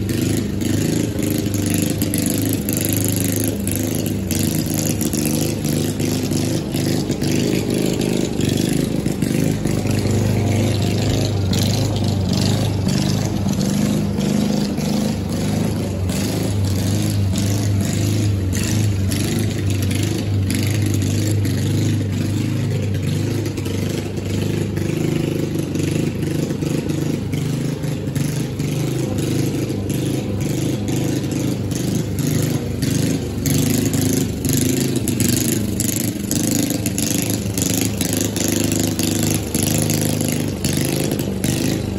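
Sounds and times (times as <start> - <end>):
lawn mower engine running: 0.0 - 41.9.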